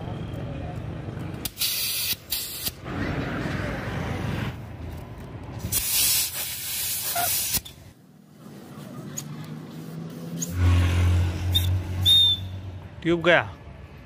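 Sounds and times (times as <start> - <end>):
compressed air hissing: 1.5 - 2.8, 5.7 - 7.9
brief high whistle: 11.5 - 12.6.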